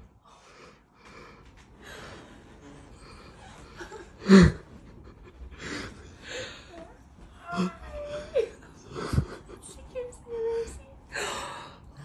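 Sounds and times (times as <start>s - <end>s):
soft breathing: 0.1s - 7.4s.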